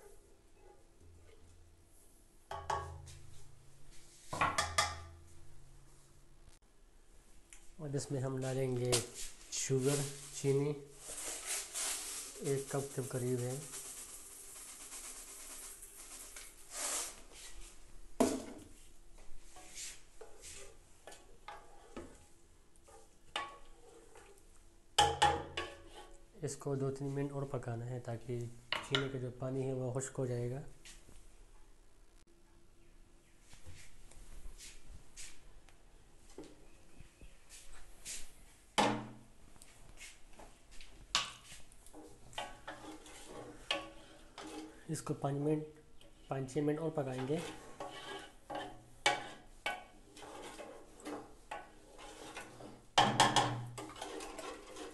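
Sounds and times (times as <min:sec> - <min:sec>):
spoon knocking metal pot: 0:02.5 - 0:03.2, 0:04.4 - 0:05.2
spoon stirring and scraping pot: 0:08.9 - 0:13.7, 0:19.5 - 0:26.3, 0:41.1 - 0:45.4, 0:46.0 - 0:54.9
sugar pouring into pot: 0:11.0 - 0:17.2.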